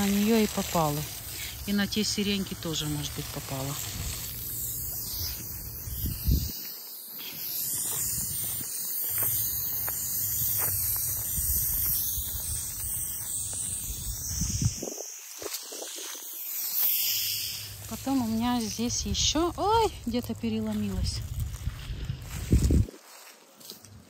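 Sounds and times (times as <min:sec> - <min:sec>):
night insects buzzing: 0:00.0 - 0:24.0
wind rumble on microphone: 0:05.8 - 0:06.6, 0:13.8 - 0:15.1, 0:20.9 - 0:23.0.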